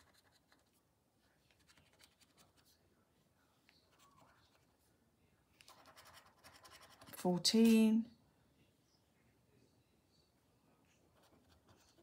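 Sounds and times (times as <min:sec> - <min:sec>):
scratch card scratching: 0:05.6 - 0:07.2.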